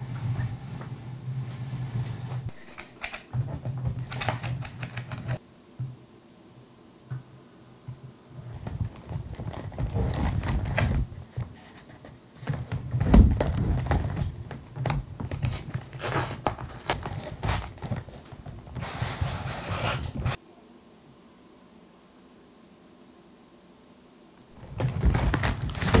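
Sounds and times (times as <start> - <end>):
rustling scrape: 0.0 - 5.4, 8.4 - 14.4, 15.3 - 20.4, 24.5 - 26.0
cardboard box scraping: 8.5 - 11.0, 15.3 - 20.4, 24.6 - 26.0.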